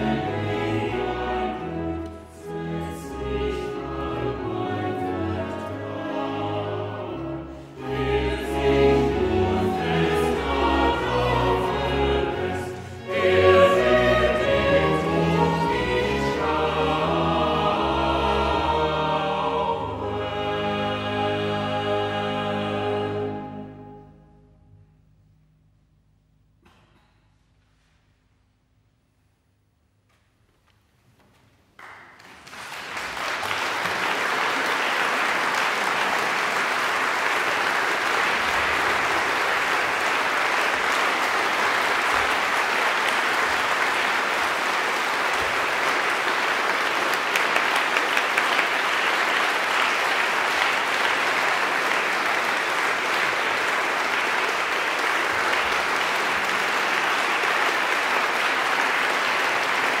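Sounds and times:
audience applauding: 0:31.8 - 1:00.0.

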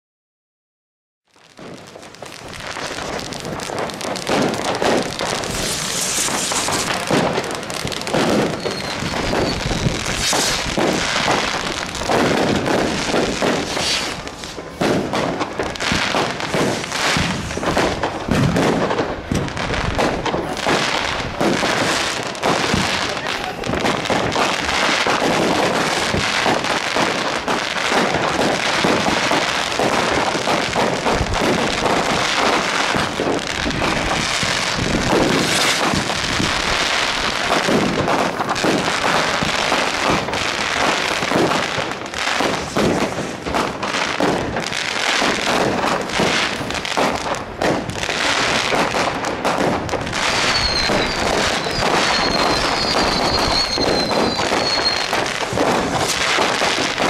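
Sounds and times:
fireworks bangs and crackling: 0:01.3 - 0:57.0
high firework whistles: 0:01.6 - 0:57.0.

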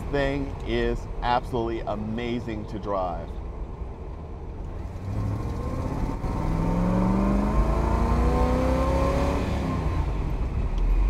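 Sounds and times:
car engine accelerating: 0:04.6 - 0:11.0.

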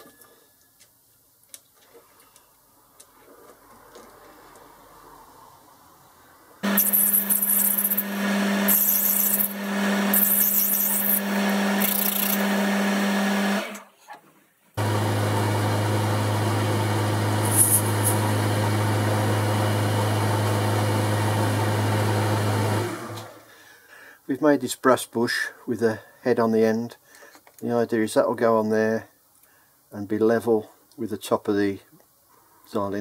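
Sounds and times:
high cutting noise: 0:06.6 - 0:13.8, 0:14.8 - 0:19.2
lathe running: 0:06.6 - 0:13.8, 0:14.8 - 0:23.4.

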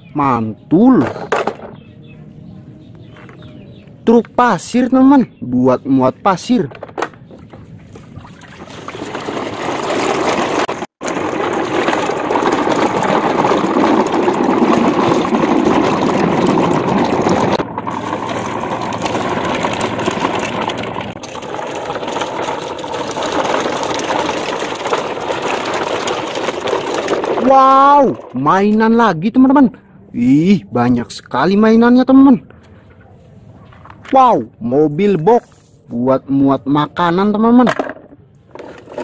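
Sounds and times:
toy trucks splashing through water: 0:07.9 - 0:28.4.

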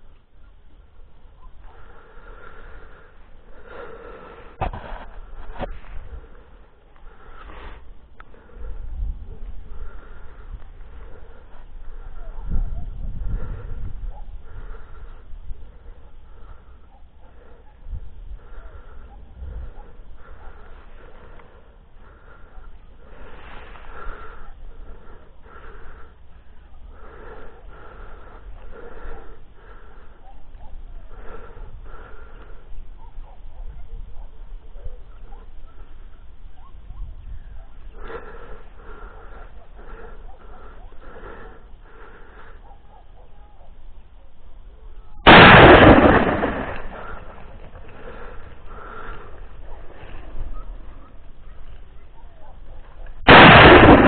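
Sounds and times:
rapid wheezy breathing: 0:01.6 - 0:32.8, 0:37.9 - 0:43.2, 0:46.0 - 0:51.8
wind rumble on microphone: 0:07.7 - 0:16.1, 0:17.7 - 0:20.3, 0:30.5 - 0:38.0
shotgun shot echoing: 0:45.3 - 0:48.3, 0:53.3 - 0:54.0.

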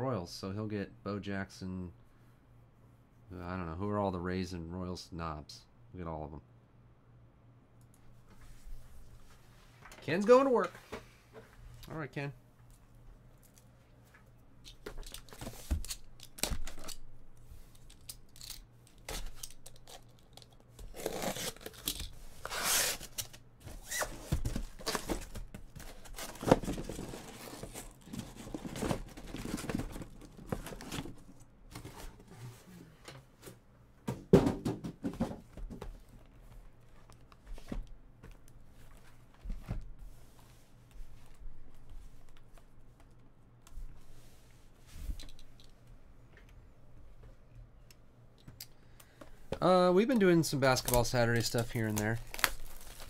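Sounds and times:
packing tape tearing: 0:17.8 - 0:31.1, 0:50.8 - 0:53.0
cardboard flaps rustling: 0:22.3 - 0:32.4
boxes knocking and scraping: 0:24.1 - 0:32.2, 0:34.1 - 0:35.9.

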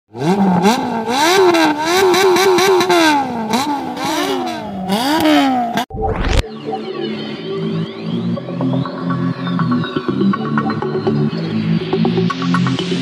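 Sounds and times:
high-revving engine blipping: 0:00.1 - 0:05.9
rising whoosh sound effect: 0:05.9 - 0:07.5
electronic music: 0:05.9 - 0:13.0.

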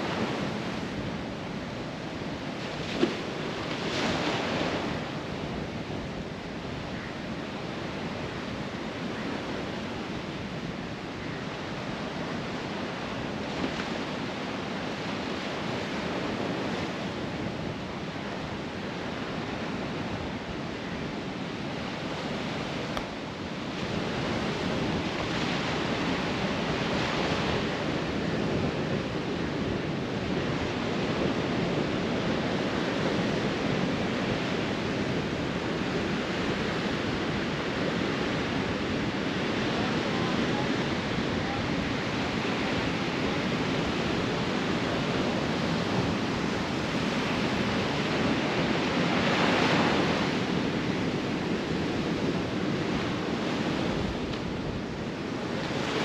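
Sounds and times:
ocean surf breaking: 0:00.0 - 0:05.7, 0:20.7 - 0:56.0.

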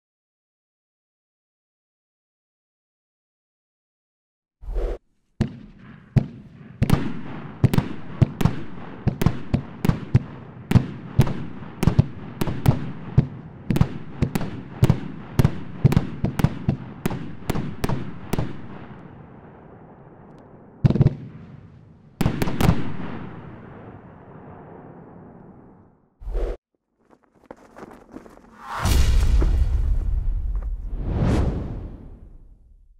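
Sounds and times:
fireworks bangs: 0:05.4 - 0:25.4, 0:27.6 - 0:32.9.

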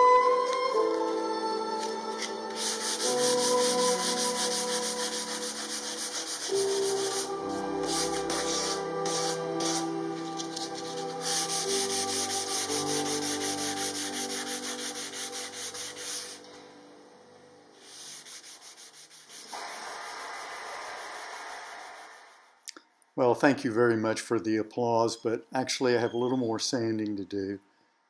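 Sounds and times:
sandpaper rasping on wood: 0:02.2 - 0:16.4, 0:17.8 - 0:22.3.

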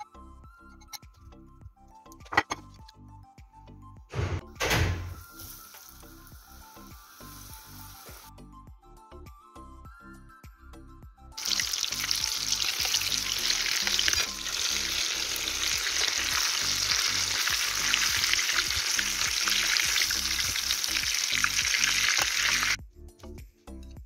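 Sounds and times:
quiet background music: 0:00.0 - 0:24.0
food sizzling in hot oil: 0:05.2 - 0:08.3, 0:11.4 - 0:22.8.

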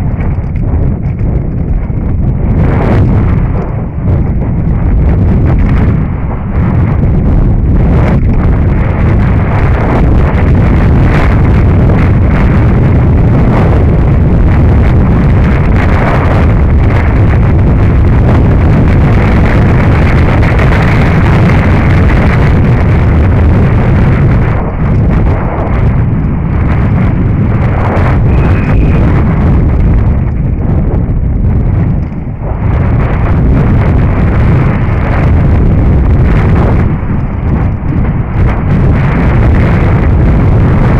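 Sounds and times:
bike rattling over rocks: 0:00.0 - 0:05.8
wind rushing over microphone: 0:00.0 - 0:40.9.

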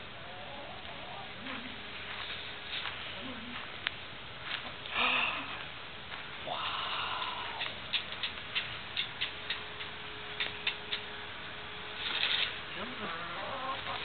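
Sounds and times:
brief rustle: 0:12.0 - 0:12.6.

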